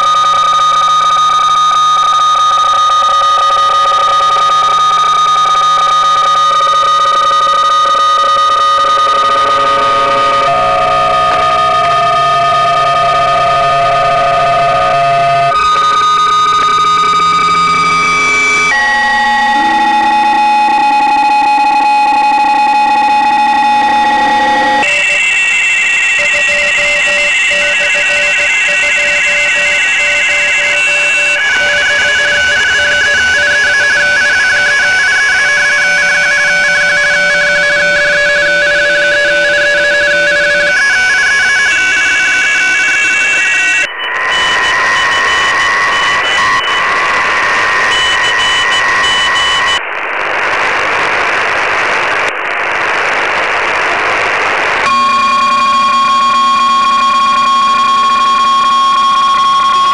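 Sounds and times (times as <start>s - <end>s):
digital radio signal tones: 0.0s - 50.7s, 54.8s - 59.9s
radio band hiss: 44.0s - 56.9s.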